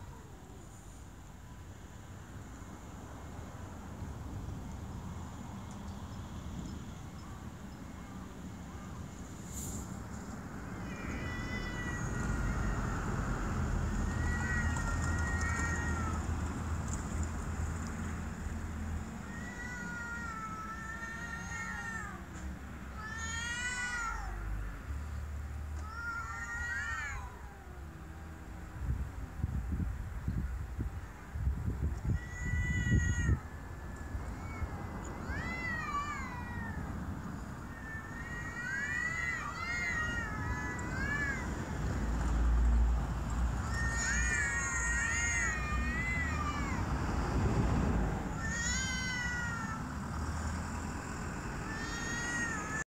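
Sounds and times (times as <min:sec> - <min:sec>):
cats yowling: 0:10.8 - 0:12.6, 0:14.0 - 0:16.2, 0:19.2 - 0:22.2, 0:23.0 - 0:24.4, 0:25.8 - 0:27.8, 0:32.0 - 0:36.8, 0:37.7 - 0:41.6, 0:43.6 - 0:46.9, 0:48.3 - 0:49.9, 0:51.6 - 0:52.8.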